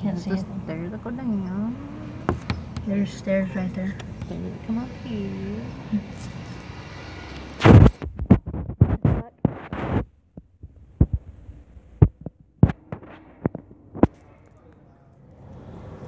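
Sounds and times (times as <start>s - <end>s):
handling noise thumps: 2.2s - 3.0s, 7.6s - 14.2s.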